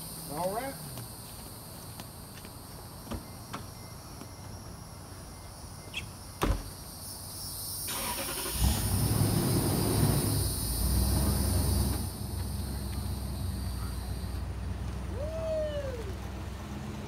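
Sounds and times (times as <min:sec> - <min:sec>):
car door shutting: 0:06.4 - 0:06.8
engine cranking and idling: 0:07.9 - 0:15.1.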